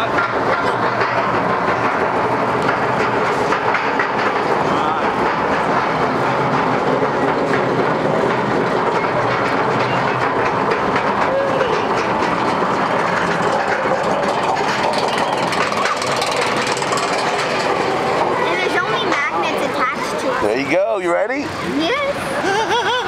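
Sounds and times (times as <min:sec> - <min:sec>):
roller coaster lift chain clattering: 0:00.0 - 0:23.0.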